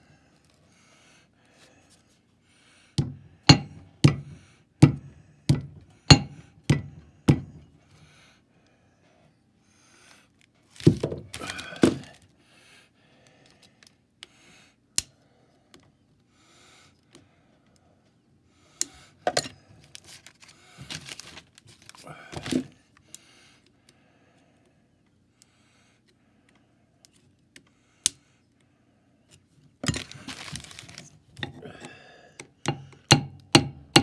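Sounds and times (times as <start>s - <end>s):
hammer tapping metal: 3.5s - 7.6s, 32.7s - 34.0s.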